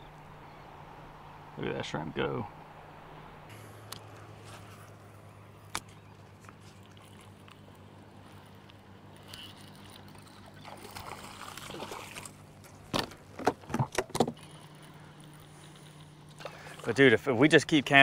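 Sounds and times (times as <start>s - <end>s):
low steady hum: 0.0s - 18.0s
water lapping at boat hull: 4.0s - 18.0s
sharp knocks and splashes: 10.0s - 14.7s.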